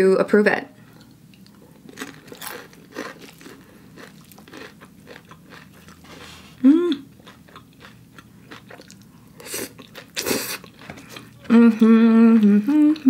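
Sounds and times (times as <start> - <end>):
chewing with wet mouth clicks: 1.0 - 6.1, 7.1 - 11.5
hummed mmm: 6.3 - 7.2, 9.4 - 13.0.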